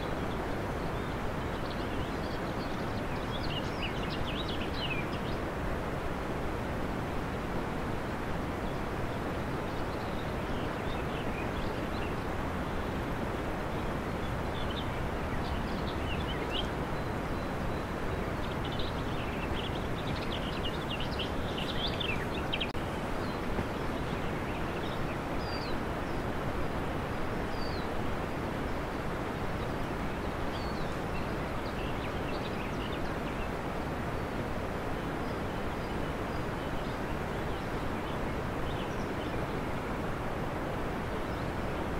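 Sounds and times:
faint bird chirps: 13.8s - 26.3s.

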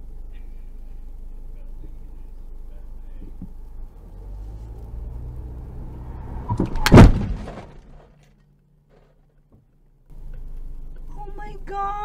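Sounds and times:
car cabin hum: 0.0s - 8.1s
loud collision impact: 5.1s - 8.1s
knocks and clatter: 5.8s - 9.8s.

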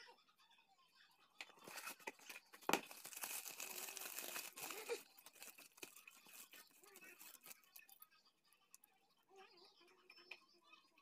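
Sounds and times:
paper wrap crinkling: 1.6s - 7.9s.

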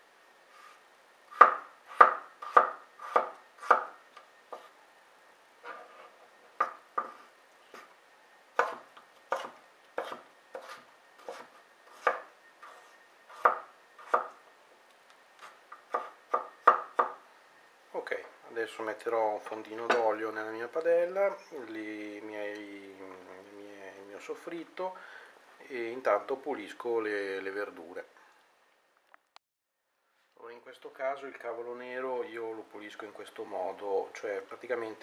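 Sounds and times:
knife chopping on wooden board: 1.3s - 3.9s, 6.6s - 7.9s, 8.6s - 14.3s, 15.4s - 17.2s.

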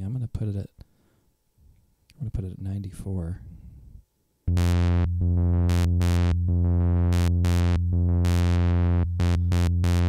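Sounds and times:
synthesizer low sawtooth note: 4.5s - 10.0s.

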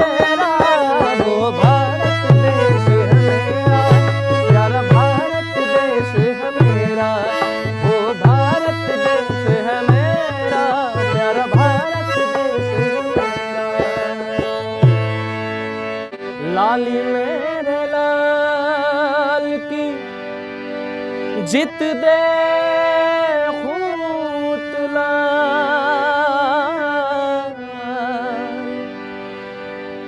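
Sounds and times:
dholak drum beating: 0.0s - 15.4s
harmonium melody: 0.0s - 30.0s.

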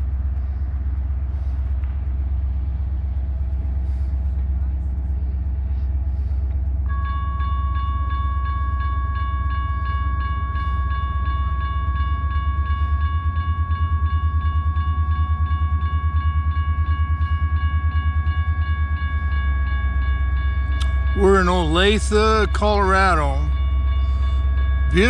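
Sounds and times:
low steady rumble: 0.0s - 25.0s
crossing bell ringing: 6.8s - 25.0s.

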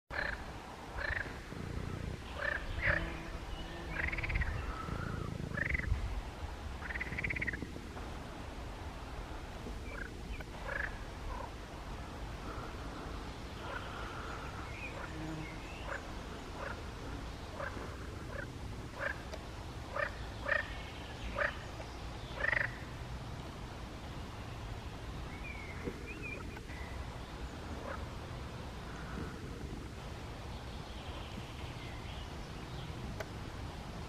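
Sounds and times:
frogs croaking: 0.1s - 6.0s, 6.8s - 7.7s, 9.8s - 12.9s, 13.5s - 19.3s, 19.9s - 21.6s, 22.4s - 23.0s, 27.6s - 28.2s.

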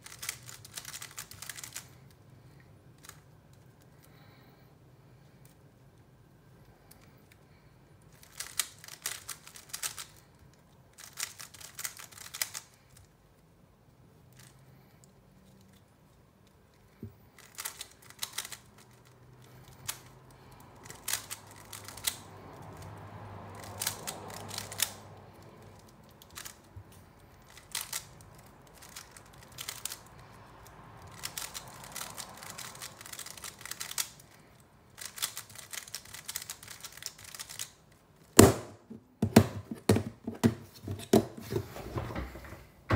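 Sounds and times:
puzzle cube layers clicking: 0.0s - 1.9s, 35.0s - 38.4s.

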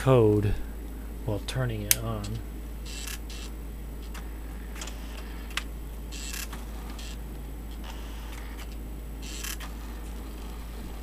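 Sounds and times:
print mechanism buzzes: 2.8s - 11.0s.

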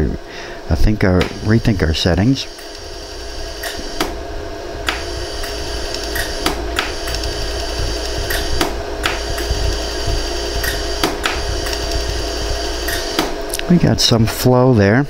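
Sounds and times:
welder steady hum: 0.0s - 15.0s
laser welder clicks: 1.2s - 1.8s, 2.5s - 4.2s, 4.8s - 13.7s.

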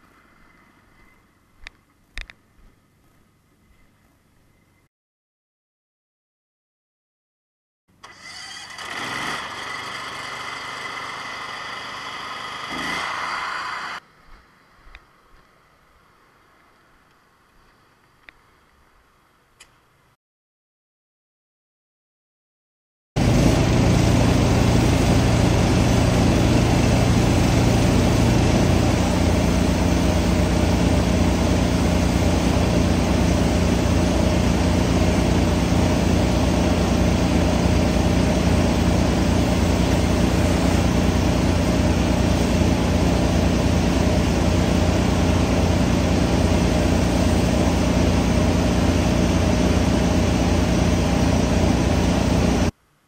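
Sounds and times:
small engine running: 8.0s - 14.0s, 23.2s - 52.7s.

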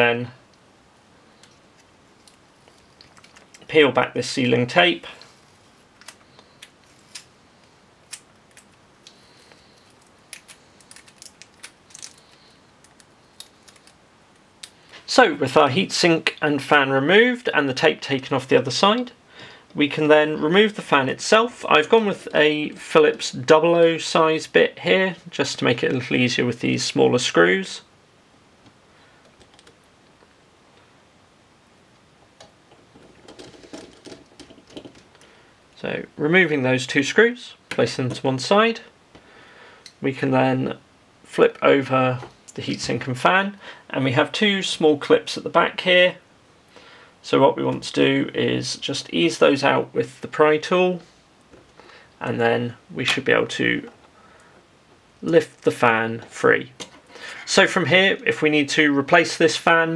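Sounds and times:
tape peeling with crackles: 5.9s - 7.3s, 8.1s - 14.8s.

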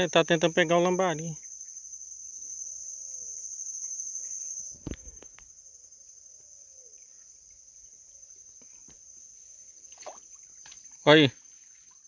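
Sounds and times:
insect chorus trilling: 0.0s - 12.0s.

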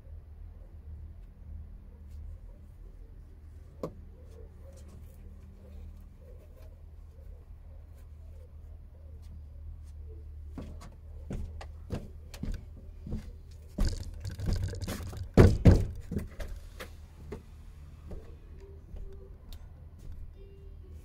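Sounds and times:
scraping on brick: 13.8s - 16.4s
masonry knocks and thunks: 13.8s - 16.5s.

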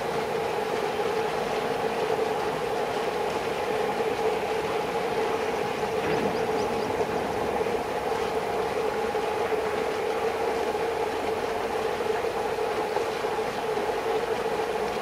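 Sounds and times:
diesel locomotives approaching: 3.1s - 12.6s.

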